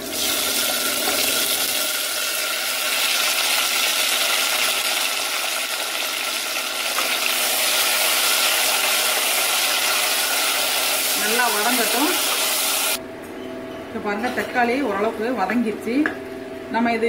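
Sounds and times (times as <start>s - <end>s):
vegetables sizzling in hot oil: 0.0s - 13.0s.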